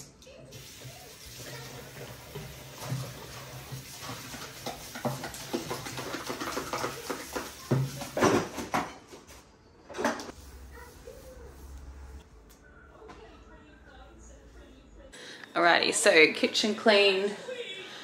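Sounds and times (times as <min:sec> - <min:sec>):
dishes clattering: 0:01.6 - 0:10.3
tap running into sink: 0:01.7 - 0:08.7.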